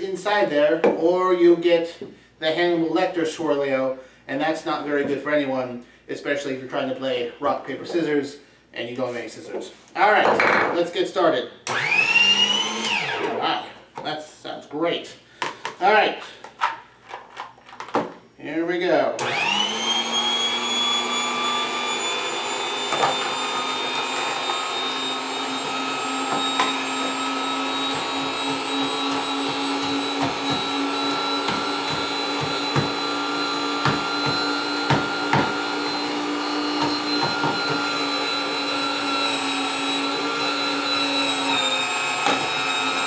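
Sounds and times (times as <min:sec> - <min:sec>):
electric motor whining: 0:11.7 - 0:13.4, 0:19.2 - 0:43.0.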